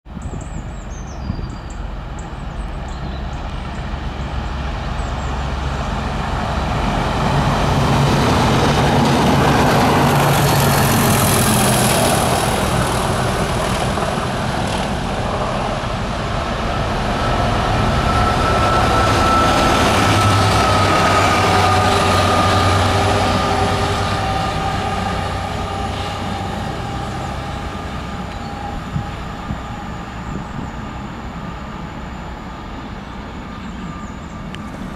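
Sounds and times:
diesel train passing: 0.1s - 34.9s
locomotive engine high whine: 0.1s - 34.9s.

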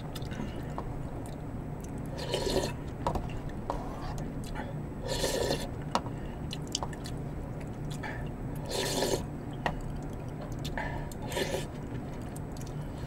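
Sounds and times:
noodles being slurped: 2.1s - 2.8s, 5.0s - 5.7s, 8.6s - 9.3s, 11.2s - 11.7s
wet eating clicks and utensils: 9.5s - 12.8s.

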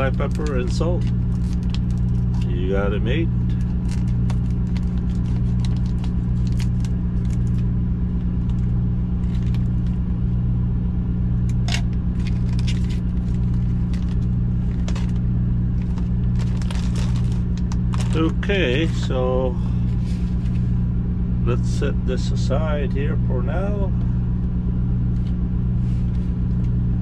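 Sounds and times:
plastic packaging crinkling: 0.0s - 2.6s, 3.4s - 7.7s, 8.4s - 10.0s, 11.5s - 19.0s
diesel truck engine idling: 0.0s - 27.0s.

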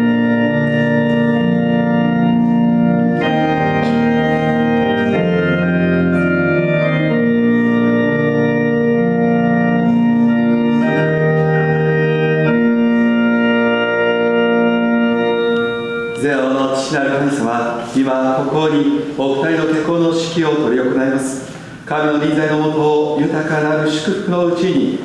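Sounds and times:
organ playing sustained chords: 0.0s - 25.0s
man's voice: 16.2s - 25.0s.

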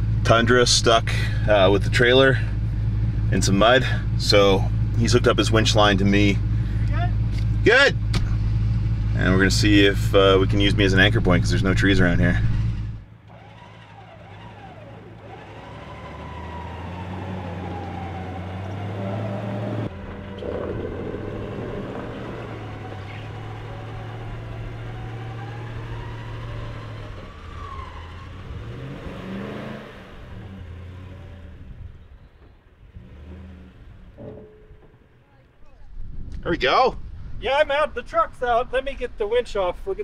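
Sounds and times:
truck engine revving: 0.0s - 35.6s
winch straining: 12.4s - 28.4s, 32.2s - 35.8s.

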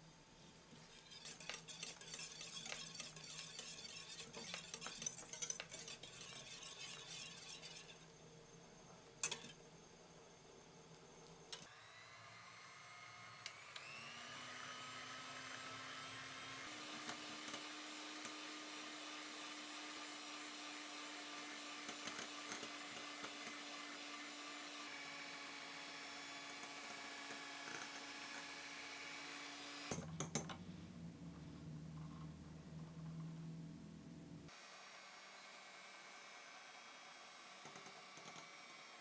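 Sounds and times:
electric hand mixer whining: 11.6s - 30.0s, 34.5s - 39.0s.

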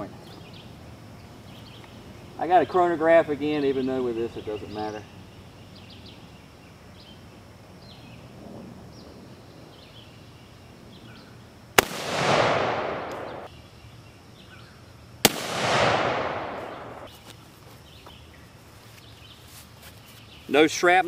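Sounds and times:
rifle shots with rolling echo: 11.8s - 13.5s, 15.2s - 17.1s.

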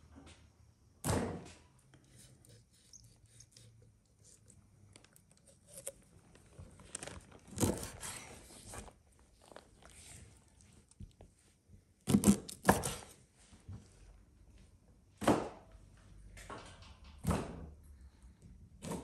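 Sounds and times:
knife cutting chicken on board: 12.1s - 13.1s.

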